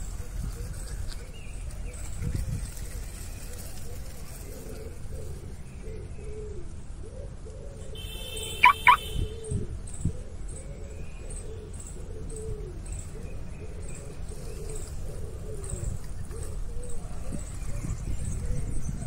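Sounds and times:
bird cooing: 3.2s - 19.0s
loud rising bird calls: 7.9s - 9.5s
faint high bird chirps: 7.9s - 9.6s.

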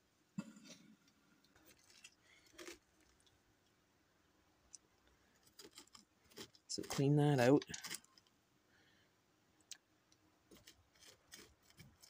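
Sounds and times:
spoon scraping squash seeds: 5.4s - 8.3s, 10.5s - 12.0s.

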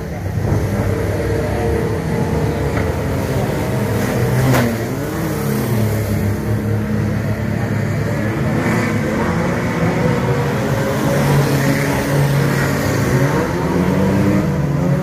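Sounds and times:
racing engines revving: 0.0s - 15.0s.

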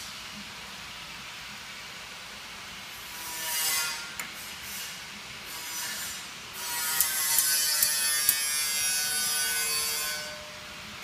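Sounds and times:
metal scraping and rubbing: 3.1s - 10.6s.

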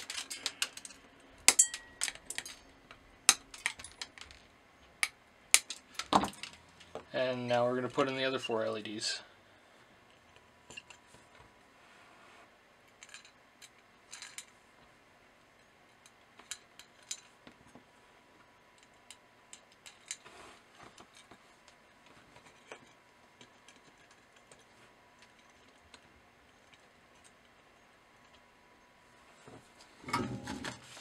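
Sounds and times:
small clicks and ticks: 20.9s - 28.5s.

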